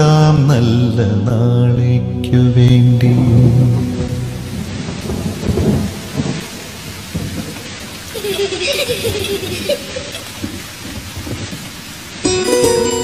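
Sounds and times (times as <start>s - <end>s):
rain hissing: 0.0s - 13.0s
low rumble: 0.5s - 7.5s.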